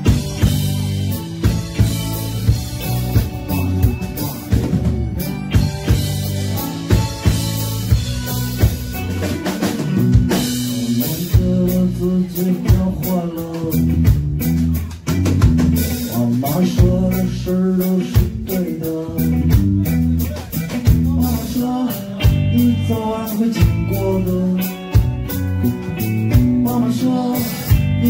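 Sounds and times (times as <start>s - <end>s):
bass guitar: 0.0s - 28.0s
drum kit beat: 0.0s - 28.0s
electric guitar: 0.0s - 28.0s
man singing: 3.5s - 5.0s, 10.3s - 14.6s, 15.9s - 25.4s, 26.1s - 28.0s.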